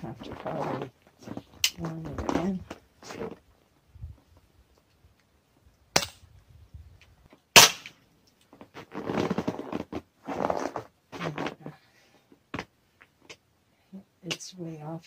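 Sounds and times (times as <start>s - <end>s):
pellet pistol shots: 7.6s - 8.0s.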